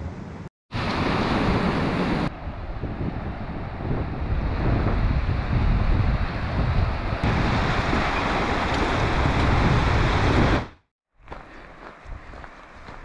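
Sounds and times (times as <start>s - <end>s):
wind buffeting microphone: 0.8s - 13.0s
river rushing loudly: 7.2s - 10.7s.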